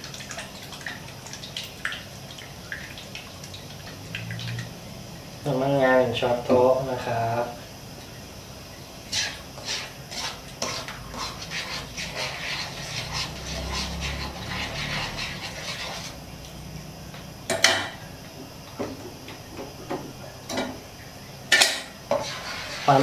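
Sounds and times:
spoon scraping wok: 9.0s - 16.2s, 21.5s - 23.0s.

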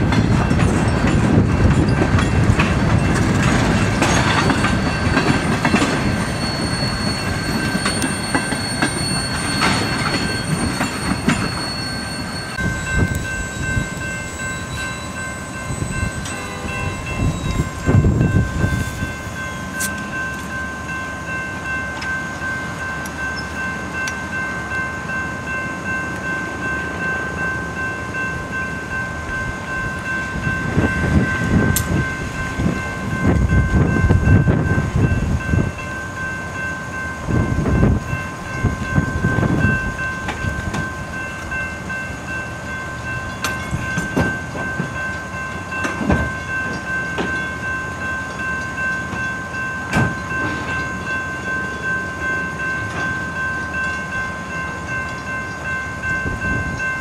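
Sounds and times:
wheels clacking over rail joints: 0.0s - 13.8s, 43.1s - 47.6s
freight cars rumbling: 0.0s - 49.2s
crossing bell ringing: 0.0s - 57.0s.

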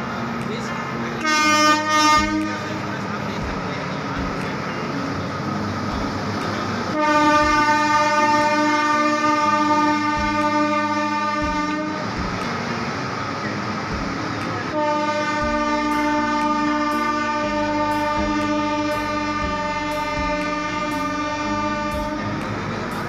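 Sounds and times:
rumble of moving train: 0.0s - 23.0s
locomotive horn blasts: 1.2s - 13.9s, 14.6s - 23.0s.

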